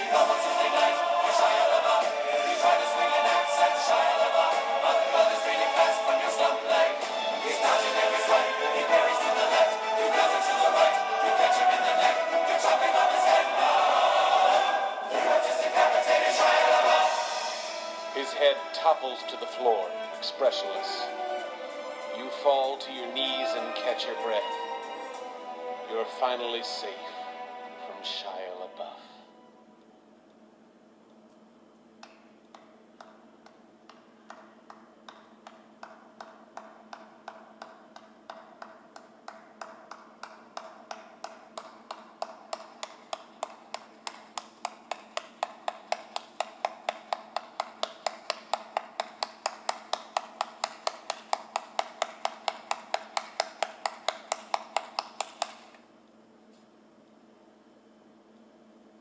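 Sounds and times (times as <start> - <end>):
faint steady hum: 0.0 - 59.0.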